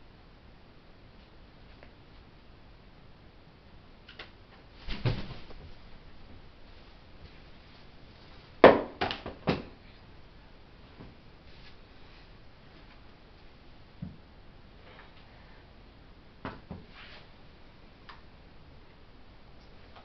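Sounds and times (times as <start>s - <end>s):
bird wings flapping: 4.8s - 5.7s.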